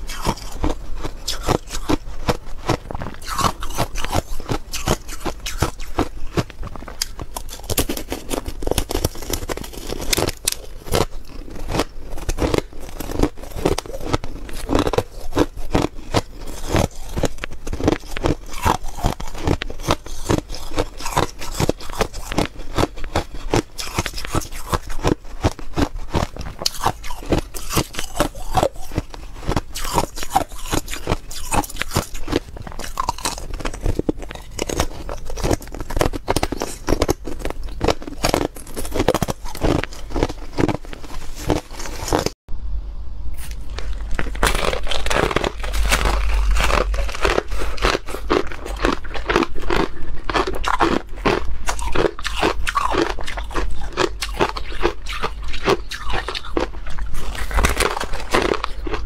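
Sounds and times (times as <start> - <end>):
ice crunching between teeth: 0.0 - 42.4, 43.4 - 59.0.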